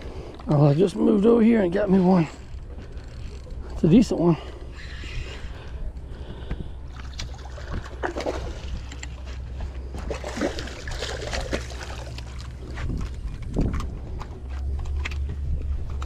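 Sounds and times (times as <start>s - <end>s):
steady low rumble: 0.0s - 16.0s
fish splashing in water: 6.9s - 8.9s, 9.9s - 12.7s.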